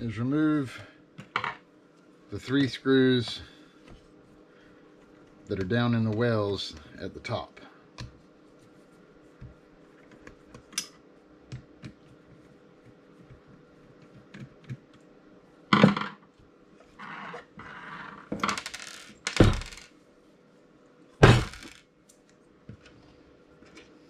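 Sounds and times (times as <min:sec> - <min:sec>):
metal tools thunking on wood: 0:21.2 - 0:21.7.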